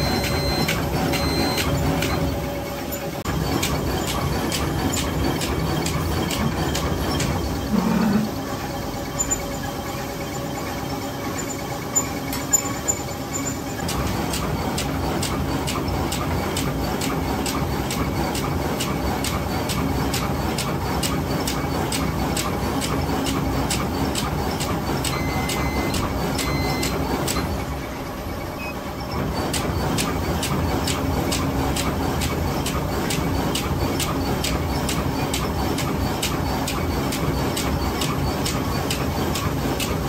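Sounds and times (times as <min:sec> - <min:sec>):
machine humming: 0:00.0 - 0:18.0
machine clacking: 0:00.0 - 0:40.0.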